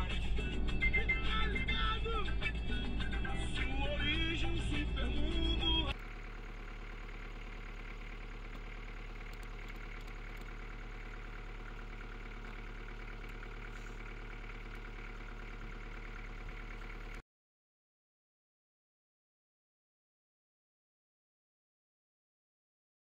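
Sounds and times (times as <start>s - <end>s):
music: 0.0s - 5.9s.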